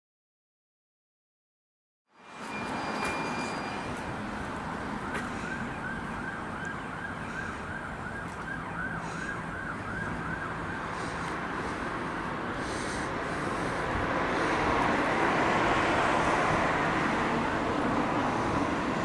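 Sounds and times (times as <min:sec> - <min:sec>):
road traffic noise: 0:02.1 - 0:19.0
emergency siren yelping: 0:03.4 - 0:13.8.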